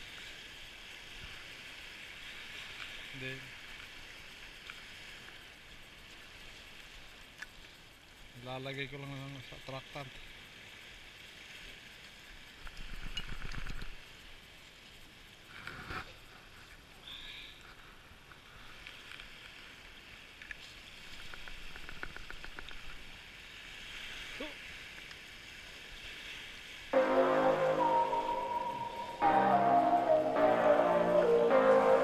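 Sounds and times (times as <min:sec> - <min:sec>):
small waves lapping on shore: 0:00.0 - 0:26.9
faint ticks: 0:03.7 - 0:09.1, 0:20.4 - 0:23.0
music: 0:27.0 - 0:32.0.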